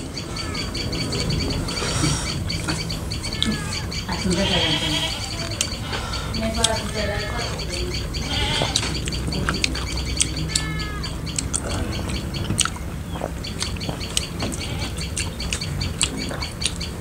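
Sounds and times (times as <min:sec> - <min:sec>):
birds chirping: 0:00.0 - 0:17.0
chewing and lip smacks: 0:11.3 - 0:16.9.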